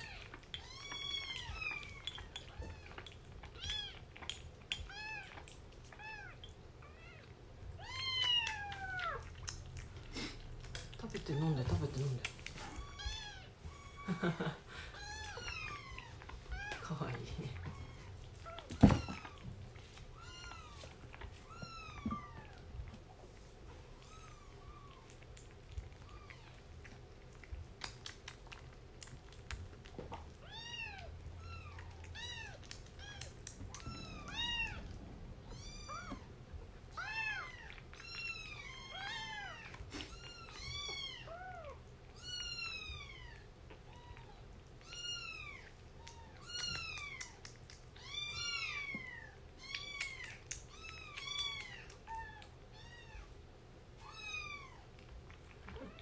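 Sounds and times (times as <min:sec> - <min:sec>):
kitten mewing: 0:30.4 - 0:41.8.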